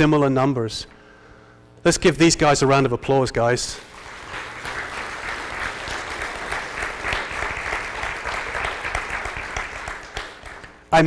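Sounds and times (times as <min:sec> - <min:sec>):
crowd applauding: 0:03.8 - 0:10.9.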